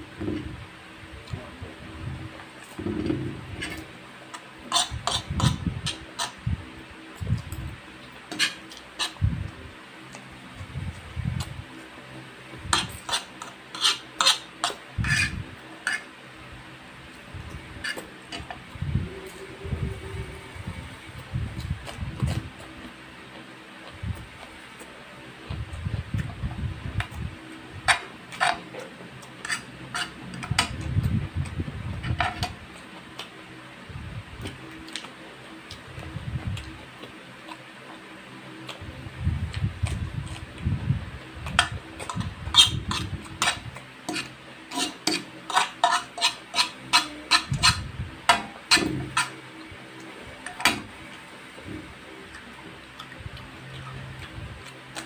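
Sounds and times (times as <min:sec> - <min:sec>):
chewing with mouth smacks: 0:34.4 - 0:38.0.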